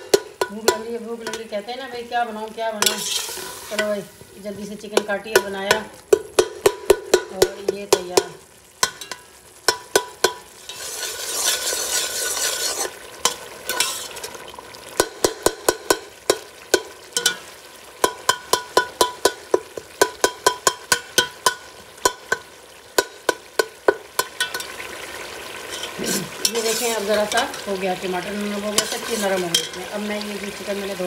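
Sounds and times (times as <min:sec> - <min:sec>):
metal spoon clinking against pot: 0:00.0 - 0:01.5, 0:05.0 - 0:14.0, 0:15.0 - 0:17.4, 0:18.0 - 0:24.7, 0:25.7 - 0:27.7, 0:28.7 - 0:29.9
masala sizzling in a pot: 0:00.0 - 0:31.0.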